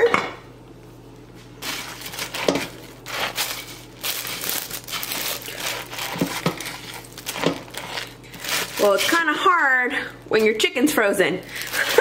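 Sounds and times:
plastic liner crinkling: 0:01.6 - 0:09.4, 0:11.5 - 0:12.0
stuffing crumbs crunching: 0:01.6 - 0:09.5, 0:11.5 - 0:12.0.

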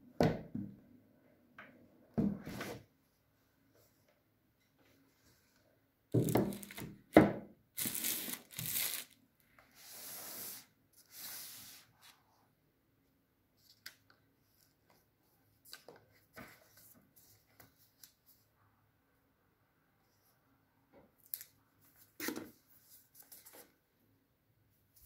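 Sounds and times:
plastic packaging crinkling and tearing: 0:06.4 - 0:06.8, 0:07.8 - 0:09.2.

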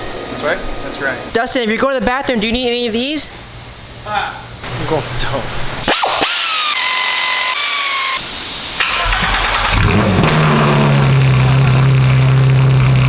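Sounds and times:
power tool whining: 0:05.9 - 0:12.9
car engine starting and idling: 0:08.5 - 0:13.0.

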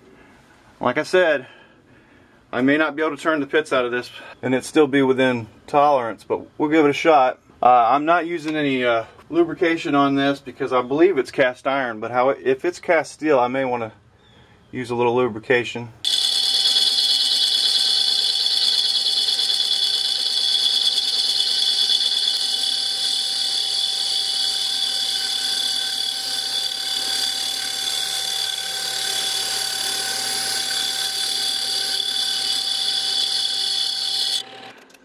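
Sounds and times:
boring bar cutting metal whine: 0:16.0 - 0:34.9
machine hum: 0:16.0 - 0:35.0.

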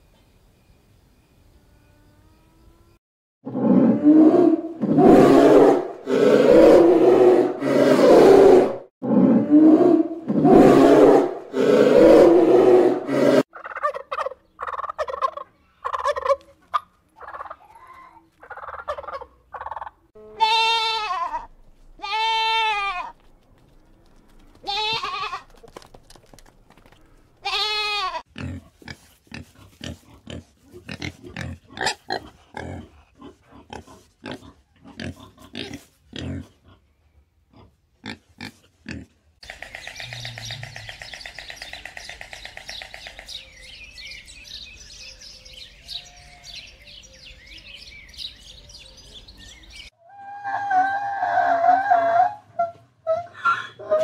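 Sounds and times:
turkey gobbling: 0:13.5 - 0:17.6, 0:18.4 - 0:20.0
pig grunting: 0:28.3 - 0:36.9.

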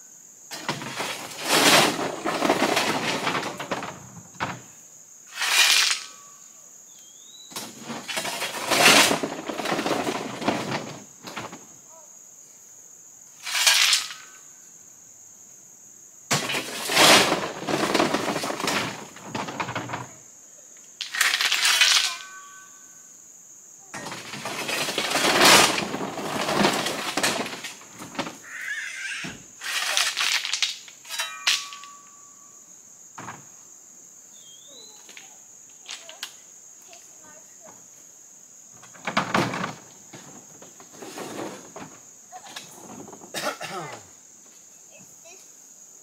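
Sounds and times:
shovel scraping gravel: 0:00.5 - 0:03.8, 0:05.3 - 0:06.4, 0:07.6 - 0:11.0, 0:13.4 - 0:14.4, 0:16.3 - 0:20.1, 0:21.0 - 0:22.6, 0:24.0 - 0:28.3, 0:29.6 - 0:32.2, 0:40.8 - 0:41.9
stones clattering onto ground: 0:00.5 - 0:04.6, 0:16.3 - 0:20.1, 0:24.0 - 0:28.4.

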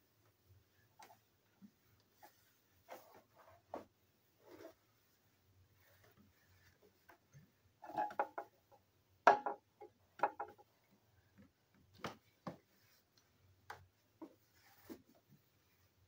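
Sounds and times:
light irregular clicks and knocks: 0:07.0 - 0:14.4.

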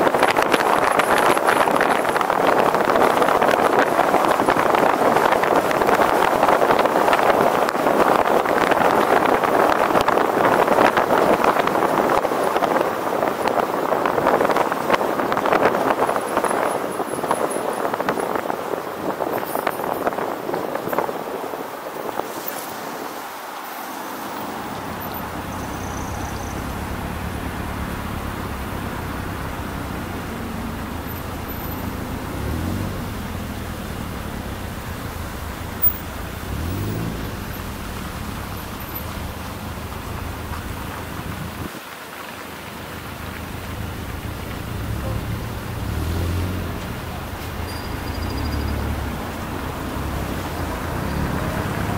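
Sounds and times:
wind rush: 0:00.0 - 0:23.6
city traffic noise: 0:00.0 - 0:51.9
road noise: 0:00.0 - 0:51.9.

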